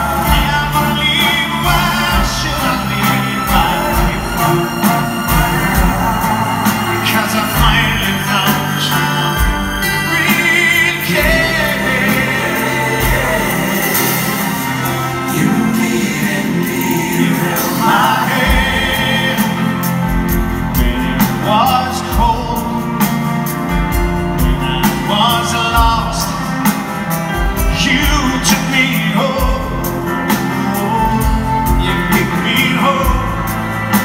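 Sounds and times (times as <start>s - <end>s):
man singing: 0.0s - 23.2s, 24.3s - 26.8s, 27.5s - 34.0s
live band playing: 0.0s - 34.0s.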